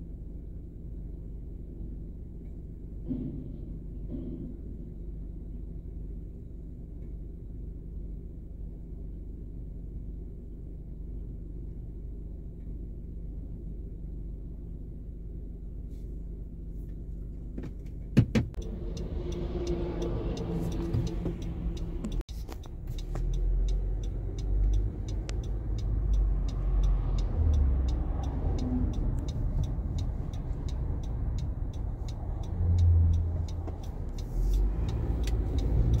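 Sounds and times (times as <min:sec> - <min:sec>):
car engine and road rumble: 0:00.0 - 0:36.0
diesel truck engine running: 0:18.5 - 0:36.0.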